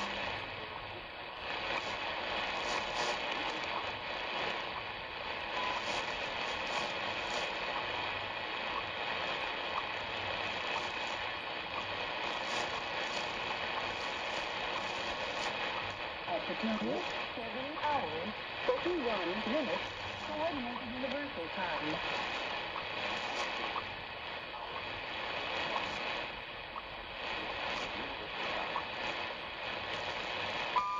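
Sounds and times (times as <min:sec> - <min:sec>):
shortwave radio static hiss: 0:00.0 - 0:30.9
faint time signal ticks: 0:02.8 - 0:23.9.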